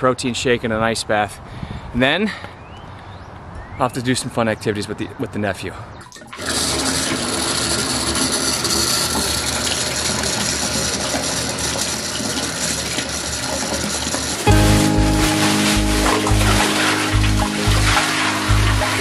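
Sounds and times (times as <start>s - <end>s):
water gushing into bathtub: 6.2s - 14.4s.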